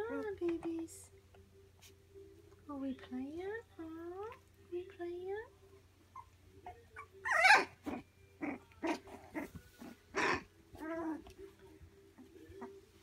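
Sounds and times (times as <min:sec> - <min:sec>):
puppies yipping and barking: 0:06.0 - 0:11.4
puppy whining: 0:06.0 - 0:13.0
puppy squealing: 0:06.1 - 0:09.5.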